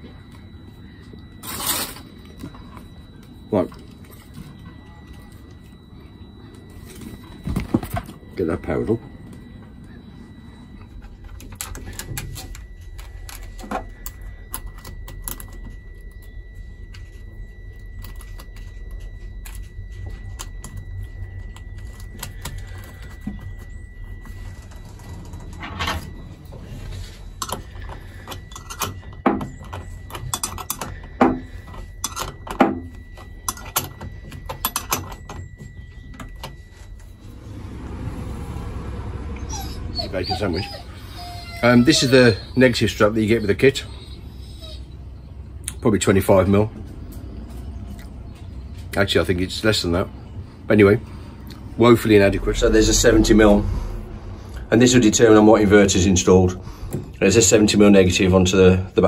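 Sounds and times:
faint high whine: 0.0s - 59.0s
low rumble: 51.5s - 57.2s.

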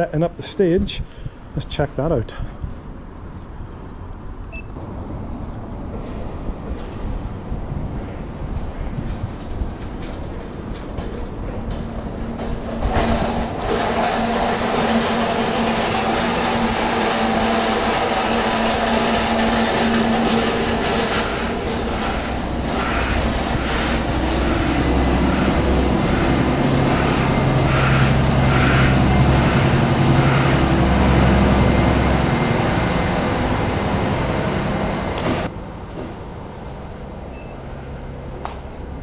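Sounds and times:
engines humming: 4.4s - 39.0s
wind on microphone: 5.2s - 13.6s.

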